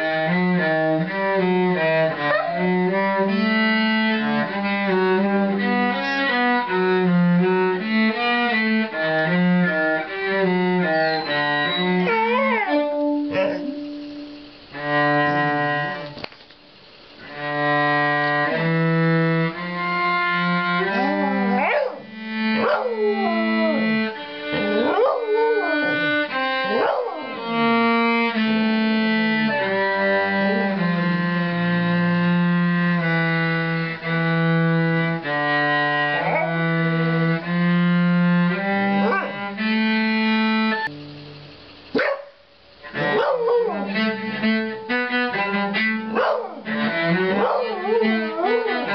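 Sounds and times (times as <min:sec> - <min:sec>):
cello slow held notes: 0:00.0 - 0:16.2, 0:16.8 - 0:41.9, 0:42.7 - 0:48.9
dog howling: 0:02.1 - 0:02.8, 0:10.9 - 0:14.0, 0:20.8 - 0:27.6, 0:36.1 - 0:36.6, 0:39.0 - 0:39.4, 0:42.9 - 0:44.2, 0:46.1 - 0:46.7, 0:47.3 - 0:48.9.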